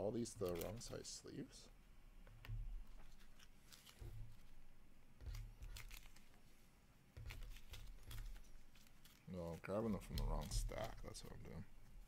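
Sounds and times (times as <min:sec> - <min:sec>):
trading cards rustling and clicking: 0:00.3 - 0:01.1, 0:02.9 - 0:04.6, 0:05.2 - 0:06.4, 0:07.2 - 0:11.6.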